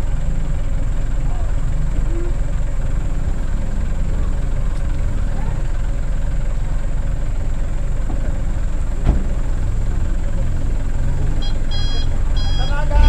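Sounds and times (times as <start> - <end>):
diesel truck engine idling: 0.0 - 13.0
reversing beeper: 11.4 - 13.0.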